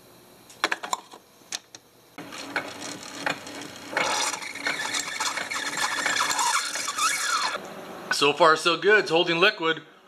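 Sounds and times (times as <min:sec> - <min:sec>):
coffee brewer pump hum: 0:02.2 - 0:08.2.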